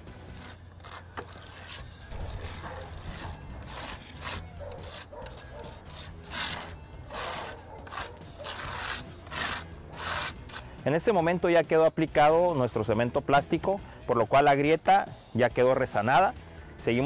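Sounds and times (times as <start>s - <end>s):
metal spatula scraping: 0.0s - 10.8s.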